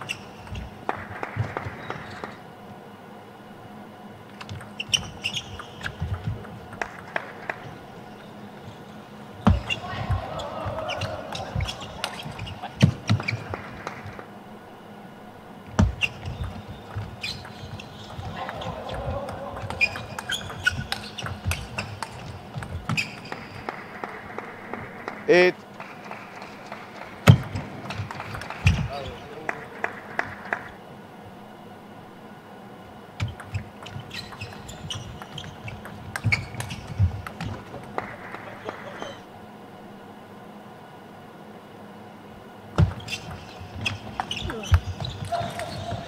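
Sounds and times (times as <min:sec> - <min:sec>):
shoes squeaking on floor: 0:00.0 - 0:00.8, 0:04.4 - 0:06.5, 0:08.1 - 0:14.2, 0:15.8 - 0:23.7, 0:33.2 - 0:39.2, 0:42.8 - 0:46.0
table tennis ball knocking: 0:15.8 - 0:23.8, 0:33.2 - 0:38.2
table tennis ball clicking: 0:33.2 - 0:38.1.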